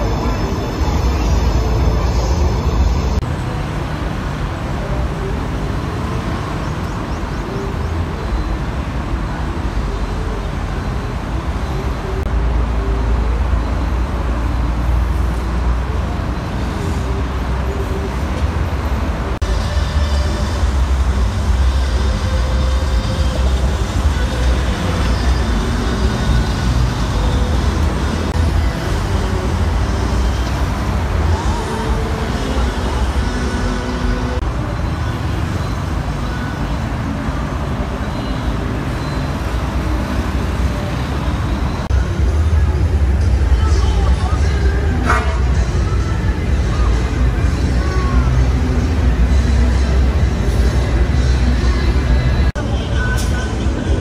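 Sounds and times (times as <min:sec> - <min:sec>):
low rumble of trucks and traffic: 0:00.0 - 0:54.0.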